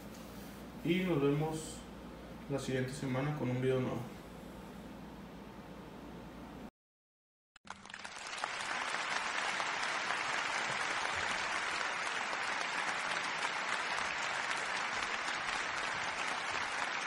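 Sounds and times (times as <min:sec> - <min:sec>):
crowd applause: 0:07.7 - 0:17.0.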